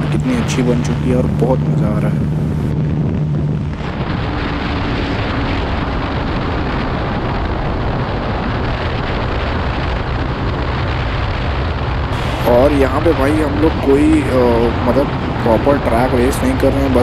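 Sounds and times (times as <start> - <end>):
wind rushing over microphone: 0.0 - 17.0.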